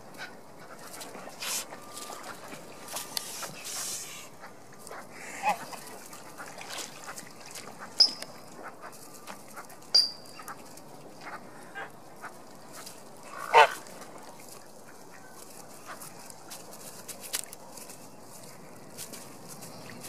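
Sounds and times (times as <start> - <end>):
birds pecking on wood chips: 0.8 - 4.2, 14.4 - 20.0
goose honking: 13.3 - 13.8.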